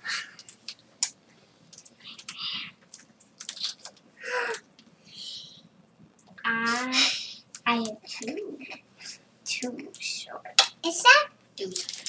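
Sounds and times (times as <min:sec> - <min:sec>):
soft breathy noises: 0:00.0 - 0:00.6, 0:01.9 - 0:02.8, 0:04.2 - 0:05.8
trading cards clicking and rustling: 0:00.4 - 0:04.6, 0:11.6 - 0:12.0.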